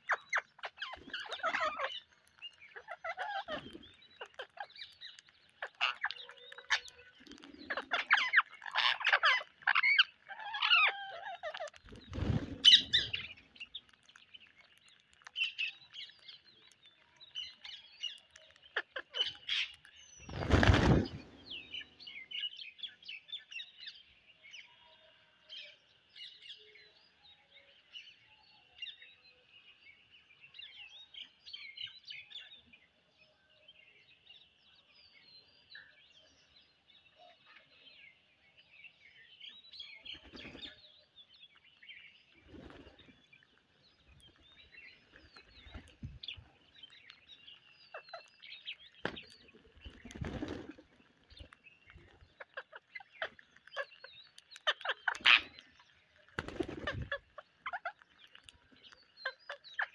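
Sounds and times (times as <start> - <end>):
parakeets chirping and chattering: 0.0 - 24.0, 39.1 - 59.9.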